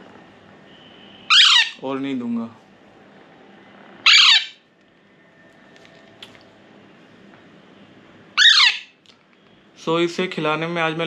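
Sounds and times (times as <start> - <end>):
parakeet chick squawking: 1.3 - 1.8, 4.0 - 4.6, 8.4 - 9.0.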